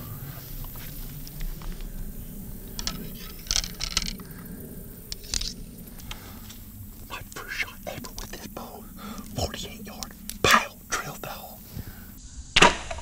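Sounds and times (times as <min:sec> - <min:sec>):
rustling in tall grass: 0:00.0 - 0:04.2
bow gear clicking: 0:02.7 - 0:04.4, 0:05.1 - 0:06.6.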